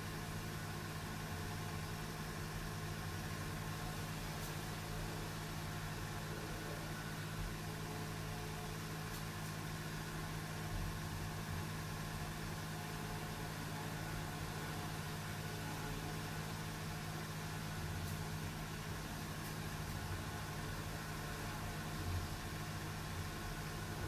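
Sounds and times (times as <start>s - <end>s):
steady machine hum: 0.0s - 24.0s.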